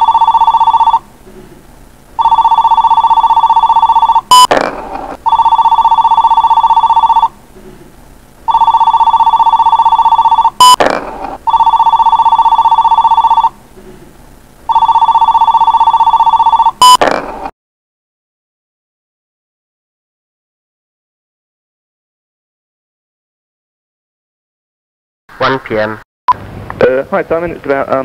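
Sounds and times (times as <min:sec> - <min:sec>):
telephone ringing: 0:00.0 - 0:01.0, 0:02.2 - 0:07.4, 0:08.5 - 0:13.6, 0:14.7 - 0:17.0.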